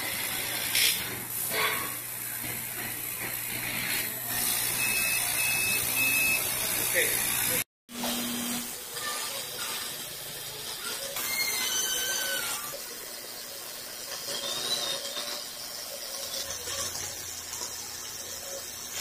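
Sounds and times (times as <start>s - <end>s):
cutting machine hissing: 0.0s - 19.0s
faint squealing tones: 10.6s - 19.0s.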